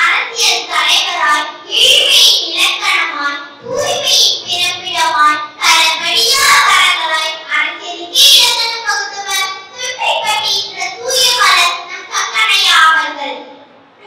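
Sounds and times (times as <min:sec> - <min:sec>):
girl speaking into a microphone: 0:00.0 - 0:13.7.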